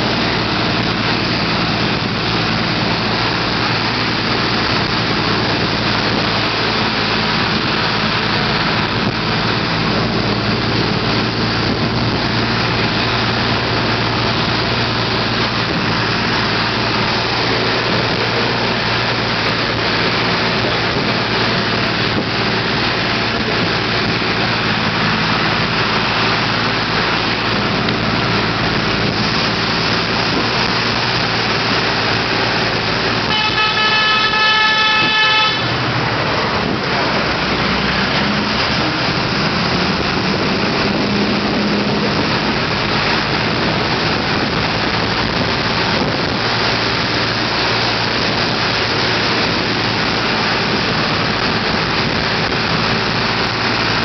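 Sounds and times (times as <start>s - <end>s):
bus engine running: 0.0s - 54.0s
wind and road noise: 0.0s - 54.0s
horn held tone: 33.2s - 35.8s.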